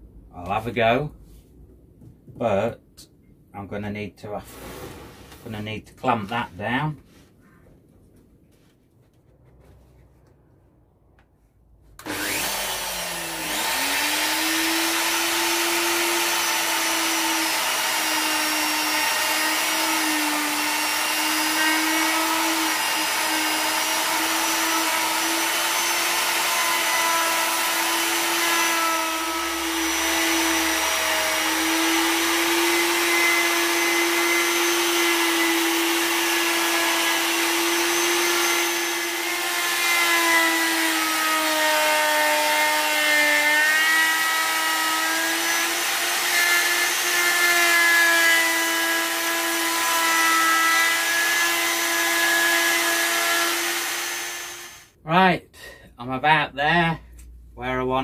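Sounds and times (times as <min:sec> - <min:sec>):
router whining while cutting wood: 0:12.0 - 0:54.9.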